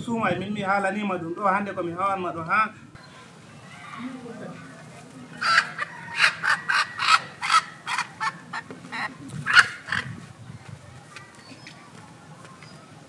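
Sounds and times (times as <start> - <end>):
poultry squawking: 3.0 - 10.4.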